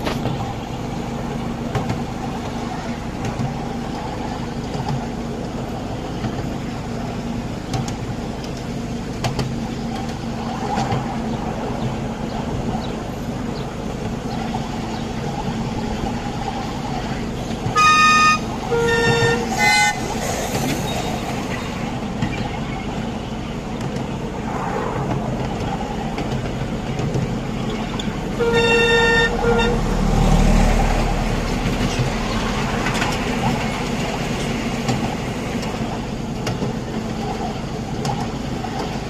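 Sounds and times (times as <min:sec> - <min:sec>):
miniature train running on track: 0:00.0 - 0:24.3, 0:25.1 - 0:39.0
passing train rumble: 0:00.0 - 0:39.0
steam locomotive whistle toots: 0:17.6 - 0:21.2, 0:28.4 - 0:30.1.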